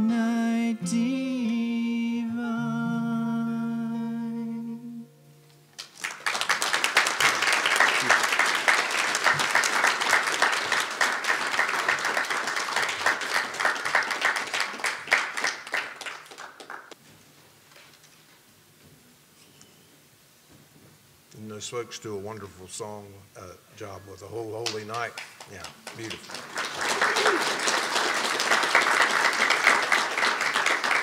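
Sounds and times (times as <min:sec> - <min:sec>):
person singing: 0:00.0 - 0:05.3
acoustic guitar: 0:00.0 - 0:06.0
congregation applauding: 0:05.7 - 0:17.0, 0:24.6 - 0:31.0.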